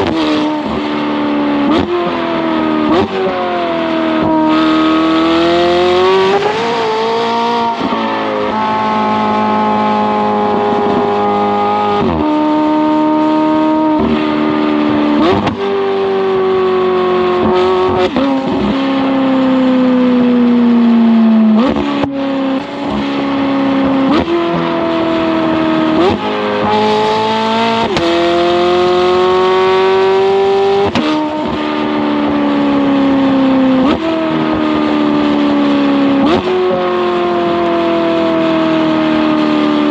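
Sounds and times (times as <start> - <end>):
sports car engine revving: 0.0 - 39.9.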